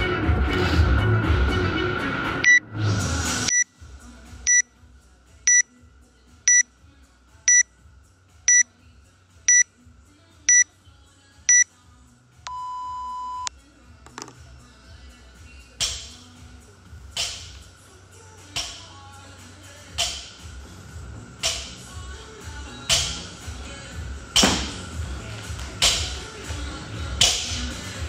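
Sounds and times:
music: 0:00.0 - 0:28.0
longer lower beep: 0:12.5 - 0:13.5
short high timer beeps: 0:12.5 - 0:13.5.

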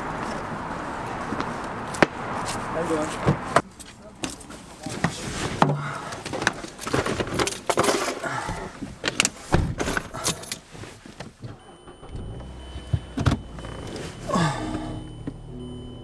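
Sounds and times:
car engine humming: 0:00.0 - 0:07.3, 0:08.2 - 0:16.0
keys jangling: 0:09.8 - 0:10.7.

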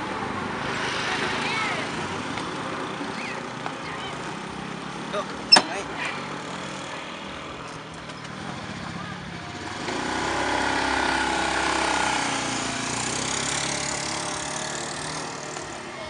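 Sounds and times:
motor scooter engine accelerating: 0:08.2 - 0:16.0.

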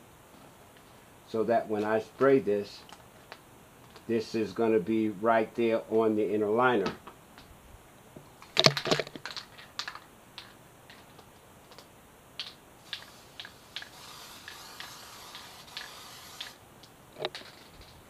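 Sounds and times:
can clicks: 0:12.4 - 0:16.6
aerosol can spraying: 0:12.8 - 0:16.6.

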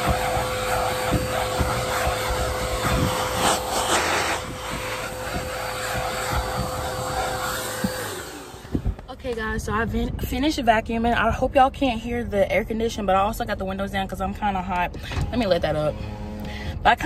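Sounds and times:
rush of hiss: 0:00.0 - 0:08.7
vacuum cleaner whining: 0:00.0 - 0:09.1.

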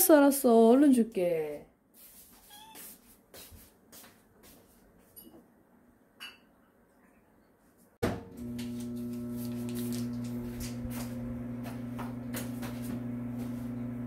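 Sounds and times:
microwave oven humming: 0:08.0 - 0:14.0.

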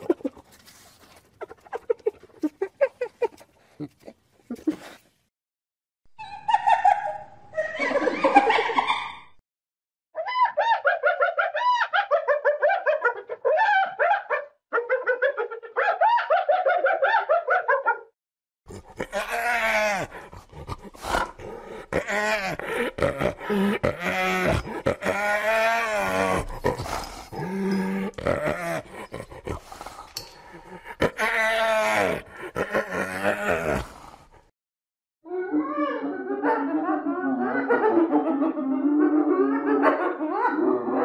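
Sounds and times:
hyenas giggling: 0:00.0 - 0:05.0, 0:18.7 - 0:34.1, 0:35.7 - 0:41.0.

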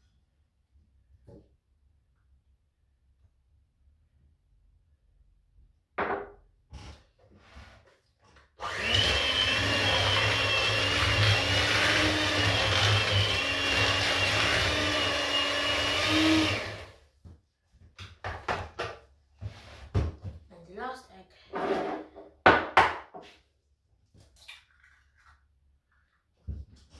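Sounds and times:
electric hand mixer whine: 0:08.6 - 0:17.0.

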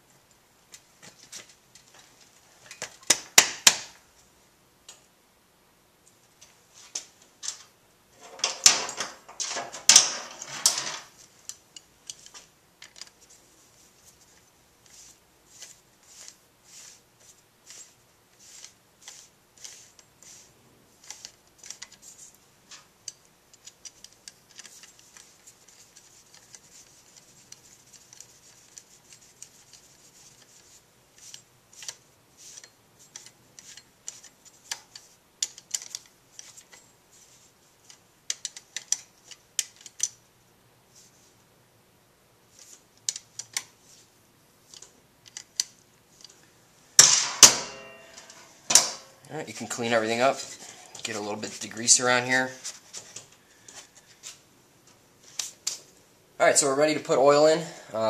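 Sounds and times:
metal tools clattering: 0:08.2 - 0:11.1, 0:47.4 - 0:49.2.

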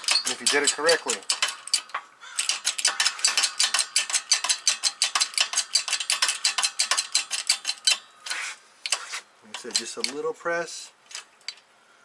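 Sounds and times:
shop press metallic clicking: 0:00.0 - 0:08.1, 0:08.8 - 0:10.2.

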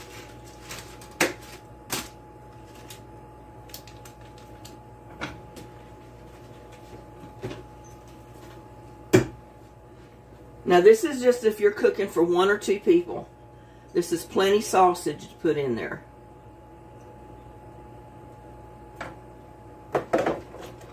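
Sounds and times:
faint steady hum: 0:00.0 - 0:20.9.

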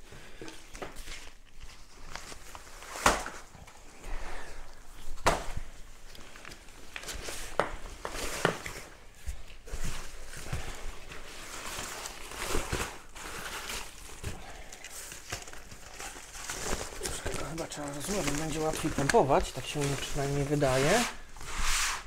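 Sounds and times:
sleeping pad fabric rustling: 0:16.0 - 0:22.0.

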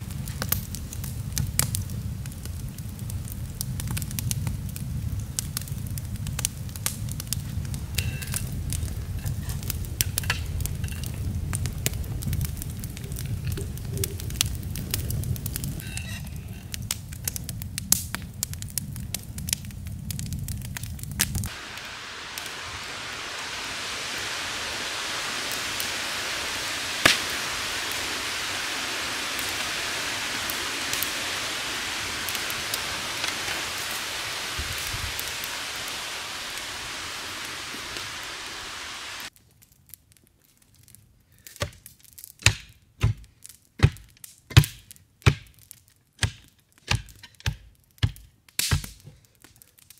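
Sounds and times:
wind in forest canopy: 0:00.0 - 0:39.4
log fire crackling and popping: 0:00.0 - 0:49.9.

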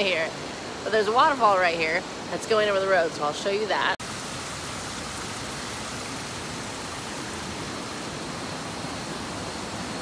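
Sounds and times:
running water rushing: 0:00.0 - 0:10.0.

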